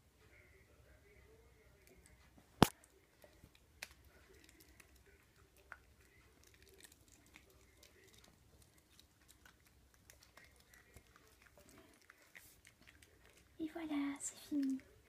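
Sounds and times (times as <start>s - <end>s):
dog biscuit cracking: 2.6s - 13.6s.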